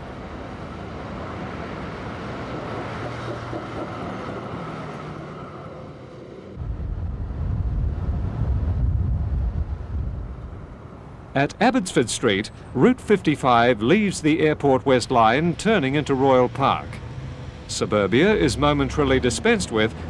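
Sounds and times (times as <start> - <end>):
tram running past: 0.0 - 20.0
uneven low rumble: 6.6 - 10.8.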